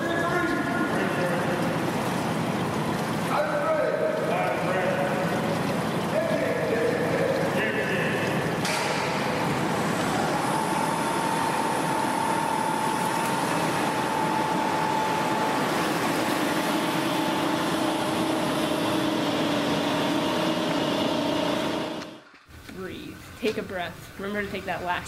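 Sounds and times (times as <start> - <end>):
faint hums: 0.0 - 25.0.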